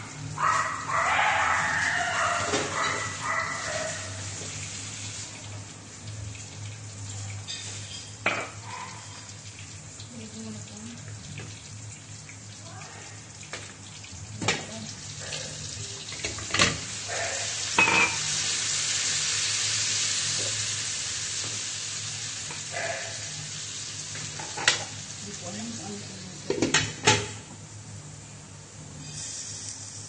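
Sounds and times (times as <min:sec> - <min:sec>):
vegetables sizzling in a pan: 0:00.0 - 0:30.0
spatula and lid clanking on pan: 0:02.4 - 0:03.2, 0:07.5 - 0:08.6, 0:17.7 - 0:18.3, 0:24.2 - 0:25.0, 0:26.5 - 0:27.4.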